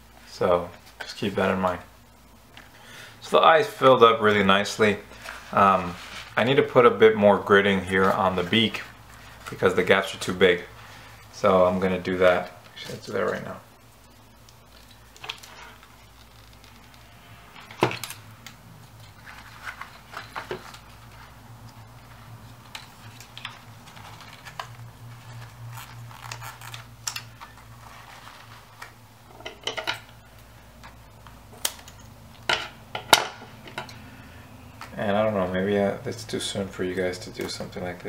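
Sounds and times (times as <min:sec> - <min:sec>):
faint low hum: 0:00.0 - 0:38.0
paper rustling and crinkling: 0:05.1 - 0:06.8, 0:17.8 - 0:29.0.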